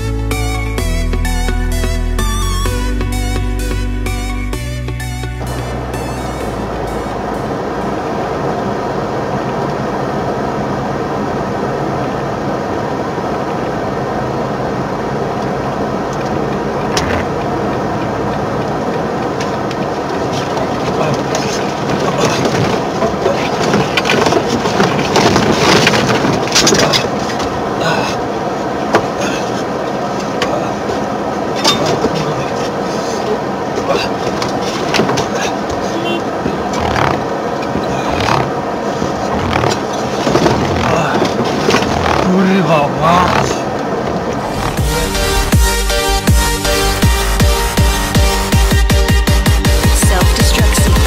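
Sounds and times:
road noise: 0.0s - 51.0s
truck engine drone: 0.0s - 51.0s
crackling and knocking: 16.1s - 27.6s, 34.2s - 42.7s.

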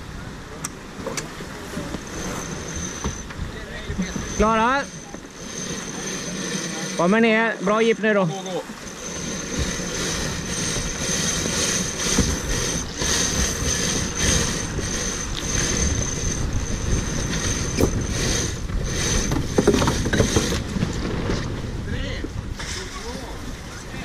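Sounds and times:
wind and water rushing: 0.0s - 24.0s
winch ratchet clicking: 4.0s - 7.2s, 8.8s - 20.6s
lines running through blocks: 4.0s - 7.3s, 8.6s - 20.6s.

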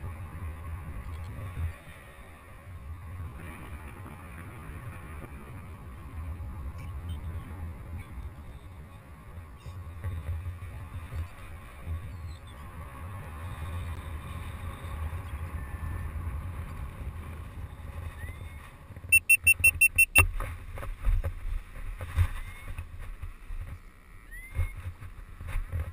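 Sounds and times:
wind on microphone: 0.0s - 25.9s
high electronic beeps: 19.1s - 20.2s.

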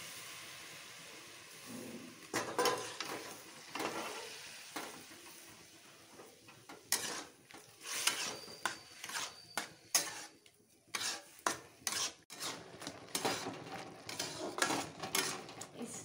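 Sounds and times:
spatula scraping metal pan: 2.3s - 4.9s, 6.6s - 15.8s.

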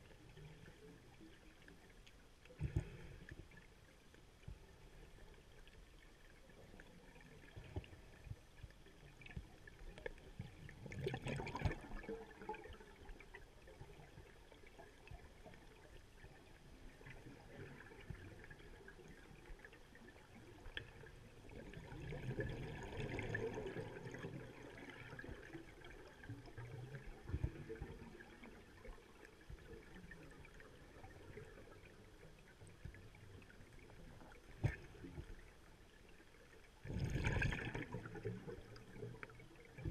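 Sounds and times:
low wash of water: 0.0s - 39.9s
diver's exhaled air bubbling: 36.8s - 38.4s.

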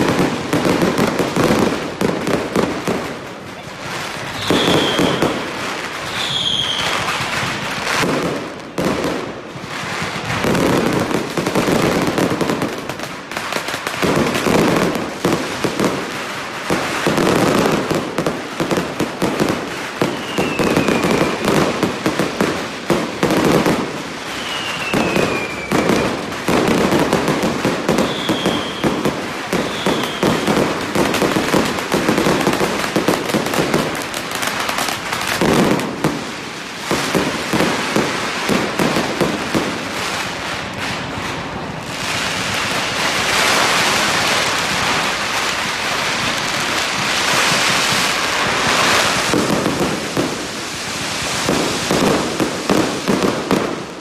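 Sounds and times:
fireworks crackling bangs: 0.0s - 54.0s
short falling whistles: 4.4s - 5.2s, 6.1s - 7.0s, 20.1s - 21.1s, 24.3s - 26.0s, 28.0s - 28.8s, 29.7s - 30.3s.

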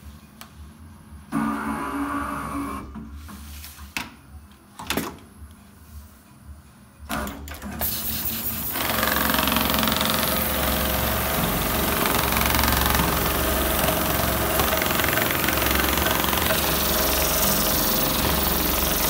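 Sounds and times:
sewing machine running: 8.3s - 19.0s.

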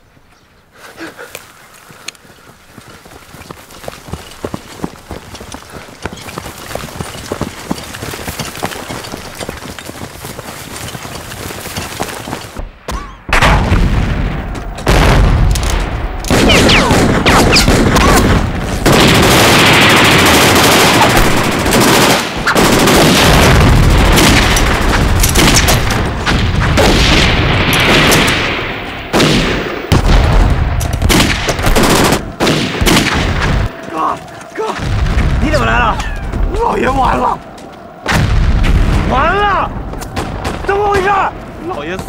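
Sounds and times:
heavy booms: 12.8s - 20.2s, 23.1s - 33.7s, 34.8s - 36.6s, 38.0s - 41.4s
rifle and pistol shots: 15.4s - 23.4s.

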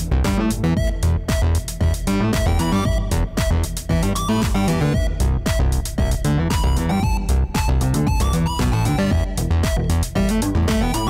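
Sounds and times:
upbeat electronic music: 0.0s - 11.0s.

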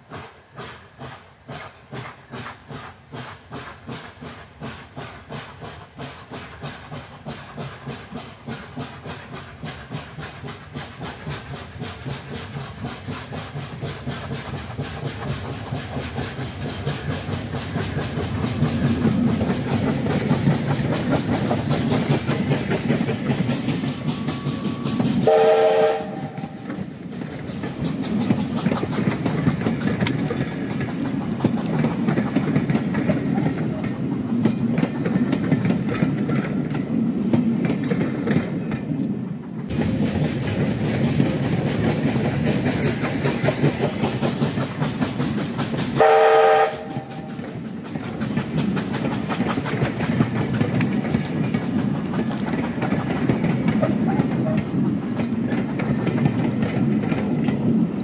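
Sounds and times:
steam locomotive exhaust chuffs: 0.0s - 58.0s
locomotive whistle blast: 24.1s - 26.6s, 46.0s - 47.4s.

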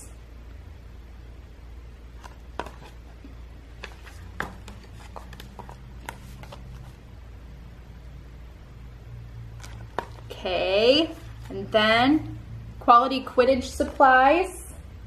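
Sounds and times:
faint low hum: 0.0s - 15.0s
book pages rustling: 2.2s - 7.1s, 9.6s - 10.3s, 11.0s - 11.7s.

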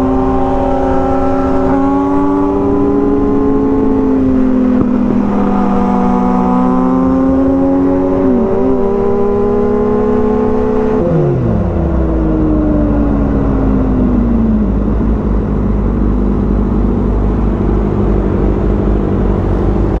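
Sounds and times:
motorcycle engine running: 0.0s - 20.0s
wind noise: 0.0s - 20.0s.

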